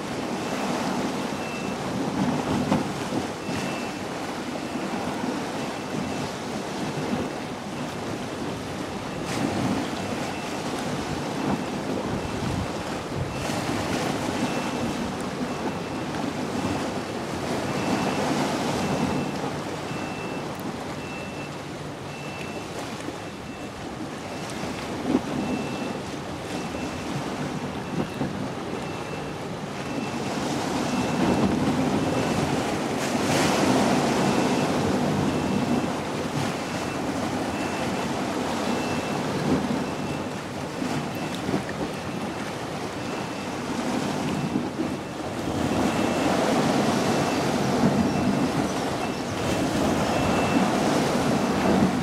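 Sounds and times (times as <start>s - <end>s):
choppy river water: 0.0s - 52.0s
wind on microphone: 4.9s - 19.6s.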